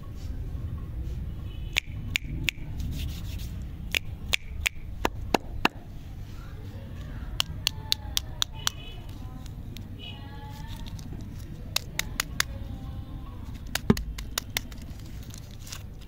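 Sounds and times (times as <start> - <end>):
low steady rumble: 0.0 - 16.0
plastic wrapper crinkling: 10.5 - 12.4, 13.6 - 16.0.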